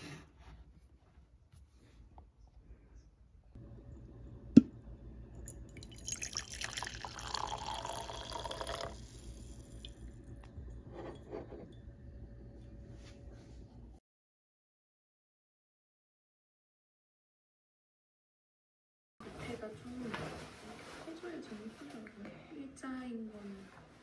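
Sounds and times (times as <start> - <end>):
coffee pouring into a mug: 5.4 - 12.3.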